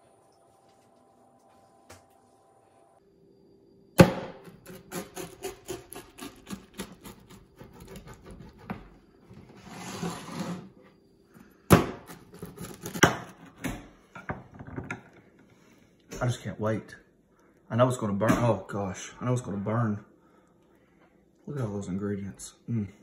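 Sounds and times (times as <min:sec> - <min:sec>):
pizza cutter rolling and scraping: 0:04.5 - 0:11.0, 0:12.1 - 0:13.6.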